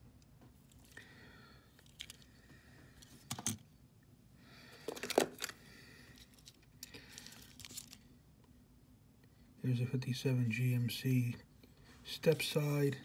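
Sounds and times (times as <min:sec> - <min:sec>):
toy trucks clicking and clattering: 0:01.8 - 0:02.3.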